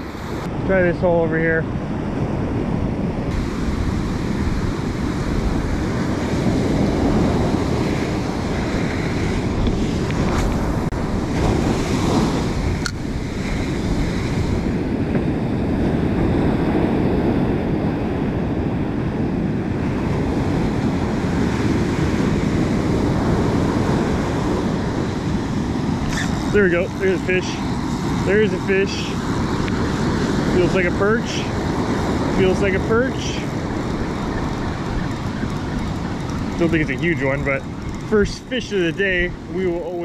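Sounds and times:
ocean surf breaking: 0:00.0 - 0:40.0
wind buffeting microphone: 0:00.0 - 0:40.0
sharp click: 0:26.0 - 0:26.5.

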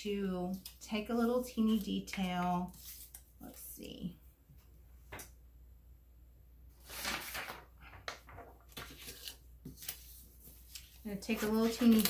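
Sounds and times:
paper rustling: 0:00.5 - 0:03.3, 0:06.8 - 0:12.0.

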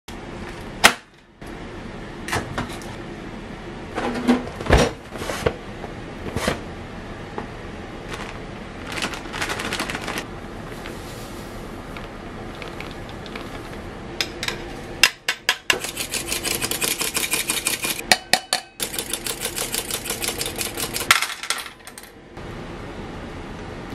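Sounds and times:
steady background hum: 0:00.1 - 0:23.9
packaging rustling: 0:08.1 - 0:10.3.

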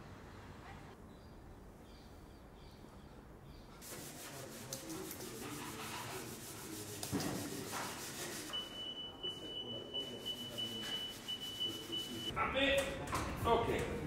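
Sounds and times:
scraping and rubbing: 0:03.8 - 0:08.5.

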